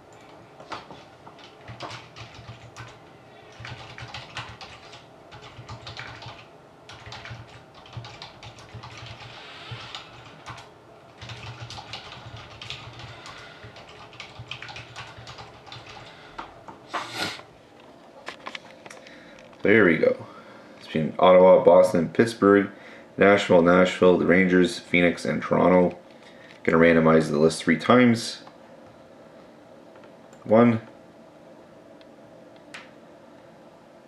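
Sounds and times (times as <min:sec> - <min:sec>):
typing on keyboard: 0:01.4 - 0:16.1.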